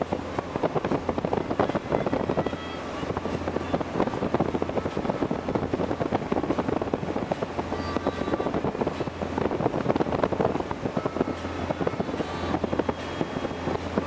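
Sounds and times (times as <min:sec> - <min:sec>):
boat engine drone: 0:00.0 - 0:14.0
hull moving through water: 0:00.0 - 0:14.0
wind buffeting microphone: 0:00.0 - 0:14.0.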